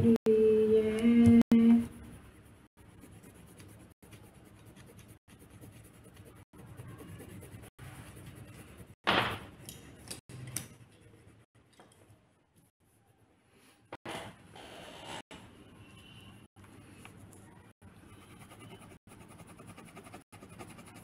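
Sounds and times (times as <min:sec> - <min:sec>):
colouring tip scratching on paper: 0:01.6 - 0:09.0, 0:18.0 - 0:21.0.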